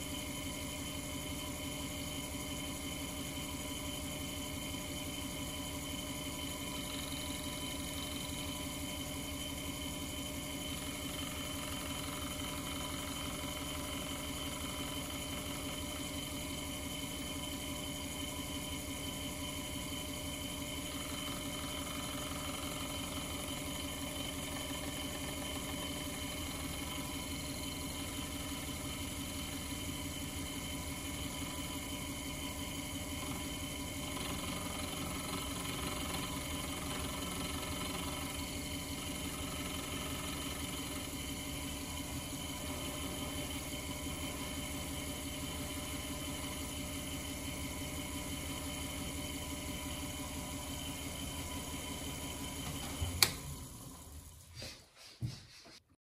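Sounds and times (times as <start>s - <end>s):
lathe humming: 0.0s - 54.7s
sharp click: 53.2s - 53.4s.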